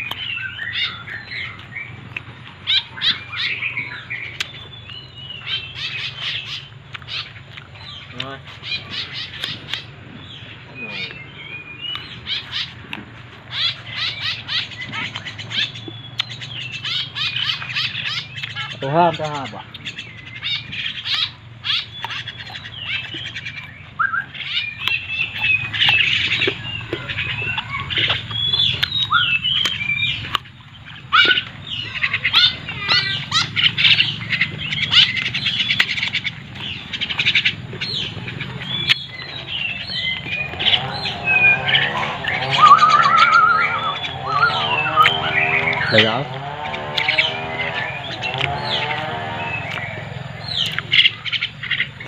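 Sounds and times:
birds chirping and squawking: 0.0s - 52.0s
lower longer bird call: 37.9s - 51.5s.

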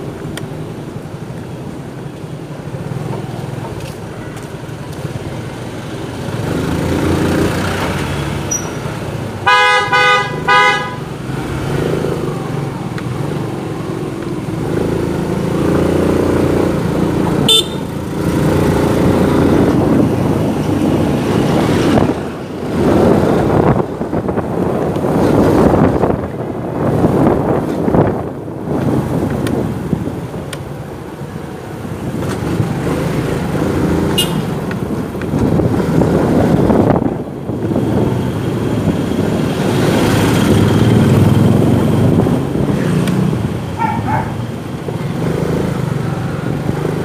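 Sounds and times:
vehicle horn honking: 9.4s - 11.1s, 17.4s - 17.9s, 34.1s - 34.6s
wind on microphone: 18.2s - 31.1s, 31.8s - 47.0s.

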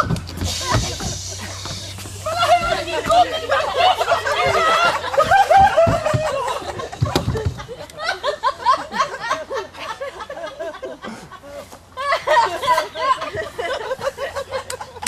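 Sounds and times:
dull low thumps: 0.0s - 3.5s, 4.4s - 7.8s
scattered voices: 0.0s - 8.1s
audience laughing: 0.5s - 15.0s.

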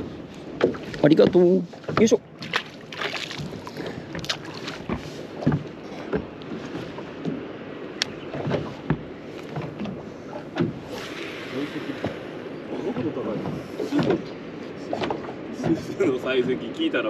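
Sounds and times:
knocks from boat and gear: 0.0s - 7.4s, 8.0s - 10.9s, 12.0s - 15.8s
waves lapping against hull: 0.0s - 17.0s.

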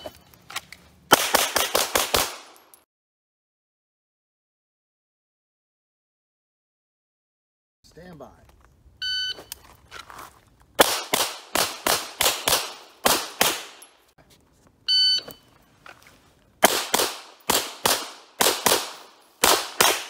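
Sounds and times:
rapid pistol shots: 1.1s - 2.6s, 10.8s - 13.9s, 16.6s - 20.0s
electronic shot-timer beep: 14.9s - 15.5s.

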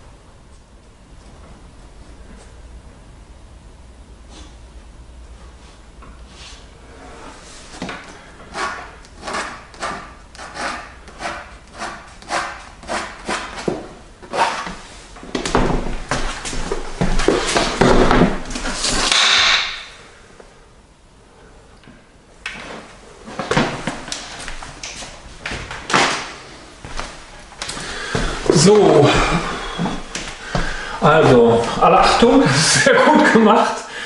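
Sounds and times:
drawing strokes scratching canvas: 8.5s - 14.7s.

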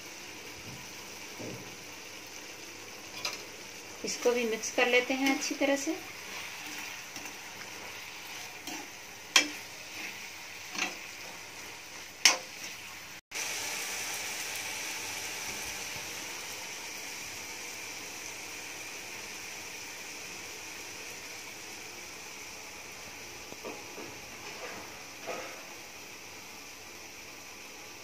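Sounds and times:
food sizzling in oil: 0.0s - 28.0s
spoon scraping a pan: 3.1s - 3.5s, 4.1s - 13.0s.

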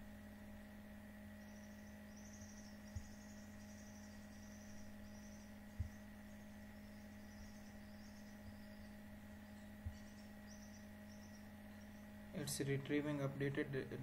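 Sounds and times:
low electrical hum: 0.0s - 14.0s
faint high chirping: 1.2s - 12.2s
soft low thumps: 5.7s - 6.2s.

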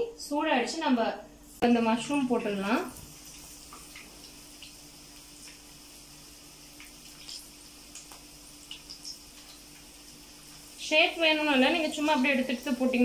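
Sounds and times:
batter deep-frying in oil: 0.5s - 13.0s
oil popping and crackling: 2.8s - 13.0s.

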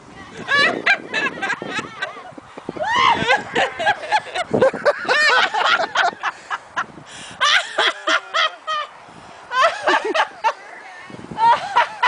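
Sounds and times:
laughter bursts: 0.4s - 2.4s, 3.0s - 8.9s, 9.5s - 10.6s, 11.4s - 12.0s.

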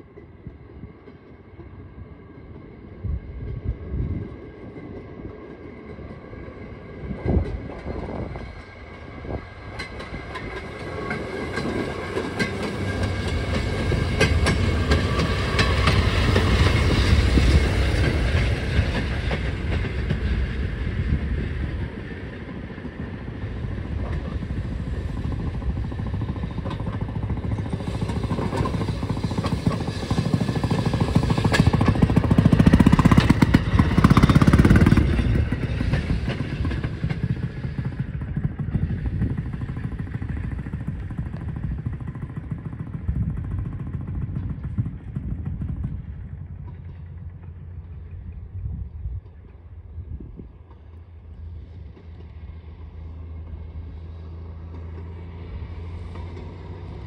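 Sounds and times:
steel wheels clicking over rail joints: 7.1s - 48.6s.

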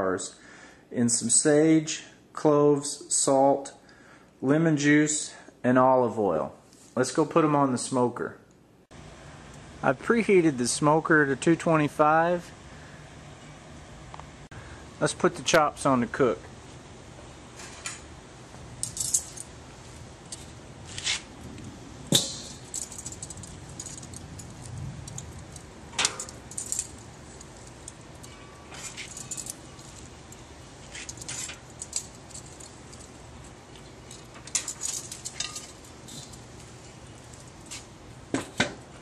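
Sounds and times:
metal tongs clinking on grate: 22.1s - 37.9s.

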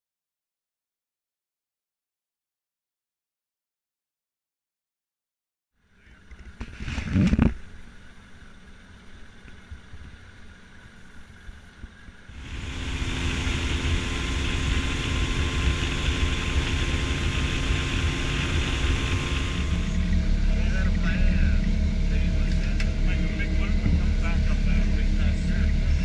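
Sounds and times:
faint low hum: 5.8s - 26.0s
motorboat engine: 5.9s - 26.0s.

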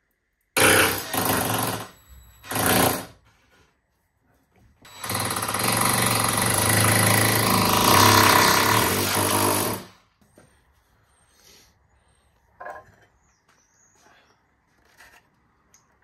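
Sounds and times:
cordless drill drilling into wall: 0.6s - 3.2s, 4.9s - 10.0s.

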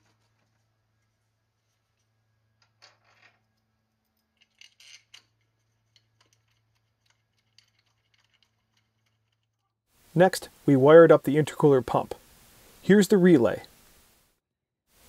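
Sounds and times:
faint clicks and rustles: 0.0s - 9.7s.

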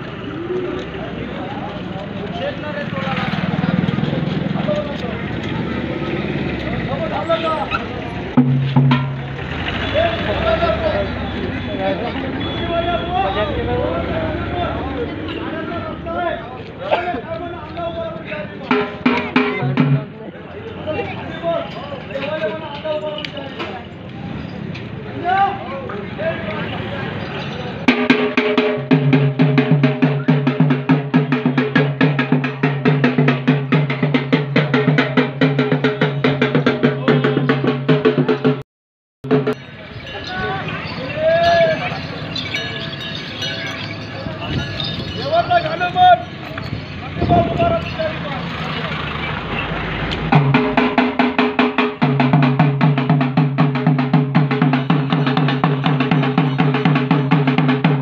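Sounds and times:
fast drumbeats: 8.3s - 9.5s, 18.6s - 20.2s, 27.9s - 38.6s, 39.2s - 39.7s, 50.2s - 58.0s.

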